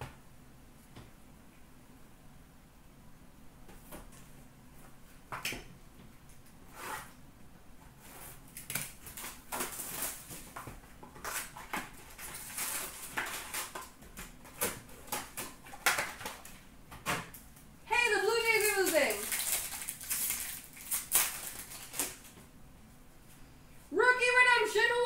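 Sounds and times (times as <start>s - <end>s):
cards rustling: 18.0s - 22.3s.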